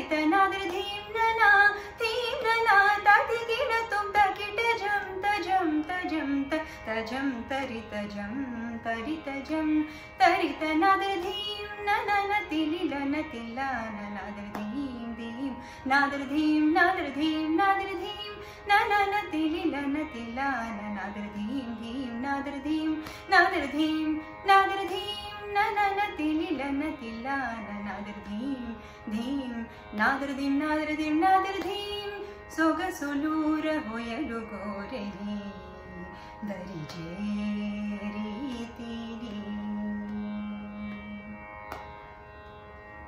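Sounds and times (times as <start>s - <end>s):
woman singing: 0.0s - 41.6s.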